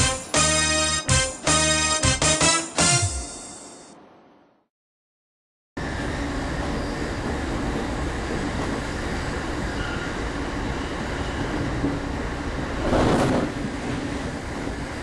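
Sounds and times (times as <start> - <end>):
train wheels rumbling on track: 5.8 - 15.0.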